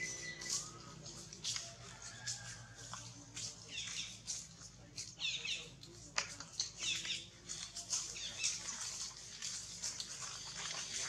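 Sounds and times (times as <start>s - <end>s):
infant monkey squeaking: 0.0s - 0.8s
leaves and branches rustling: 0.0s - 11.0s.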